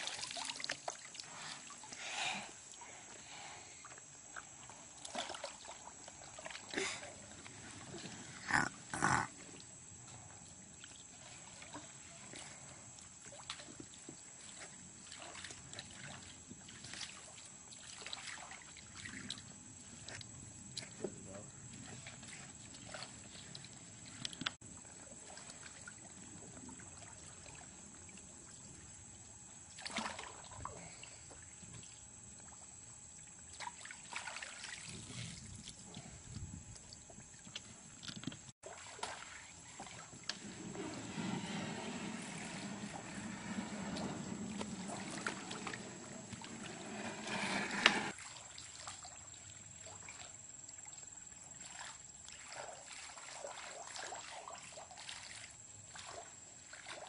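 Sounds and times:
water splashes: 0.0 - 1.9, 4.5 - 9.6, 10.8 - 21.0, 29.7 - 36.1, 38.6 - 57.0
water sloshing around wading person: 0.0 - 57.0.

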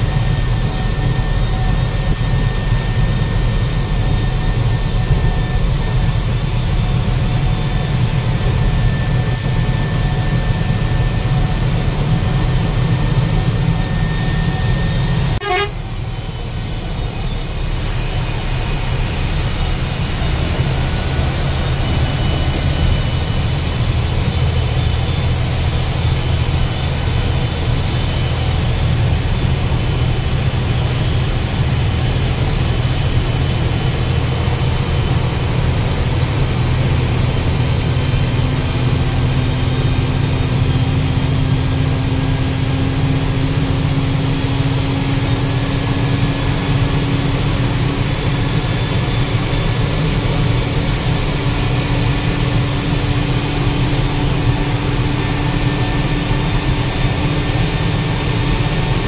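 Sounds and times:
bus engine and road rumble: 0.0 - 59.0.

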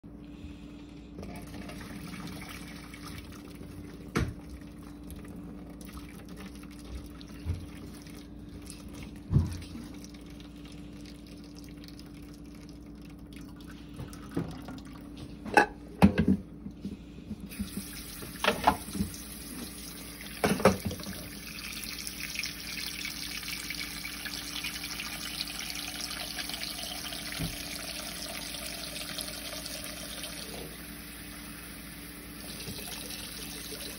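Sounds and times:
tap water running into pot: 17.5 - 33.9.

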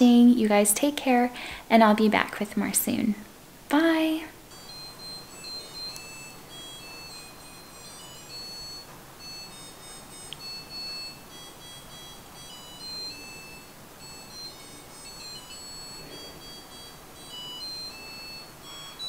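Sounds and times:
dishwasher beeping melody: 4.5 - 19.0.

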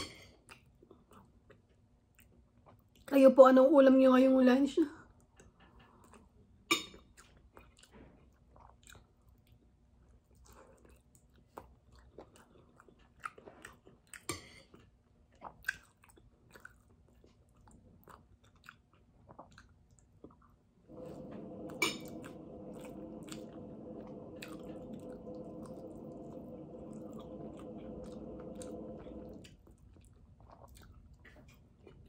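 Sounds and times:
person chewing and mouth smacks: 0.3 - 3.1, 5.2 - 20.8, 29.4 - 32.0
steady hum: 20.9 - 29.8.

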